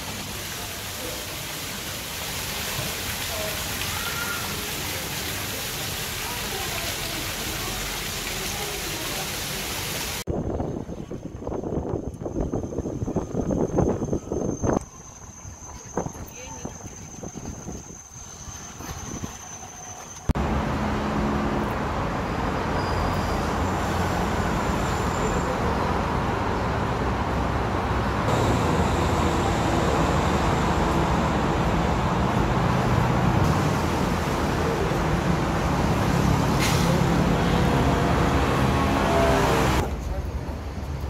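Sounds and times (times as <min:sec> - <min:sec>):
highway traffic: 0:19.1 - 0:41.0.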